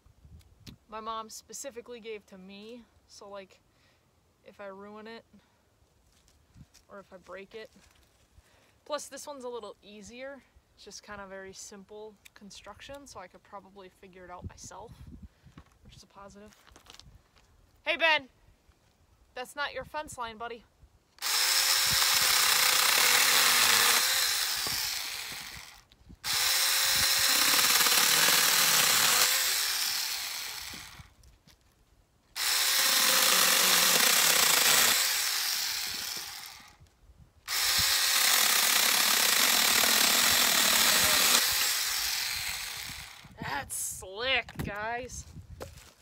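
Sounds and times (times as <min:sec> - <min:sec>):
mini chainsaw cutting branch: 0:21.2 - 0:31.2, 0:32.4 - 0:36.8, 0:37.5 - 0:43.4.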